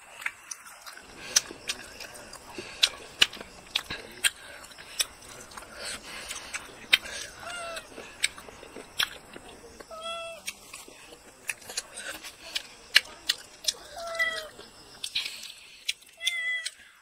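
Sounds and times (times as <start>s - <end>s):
wet eating clicks and smacks: 0.0s - 17.0s
cat meowing: 7.4s - 7.9s, 9.9s - 10.4s, 13.9s - 14.6s, 16.2s - 16.8s.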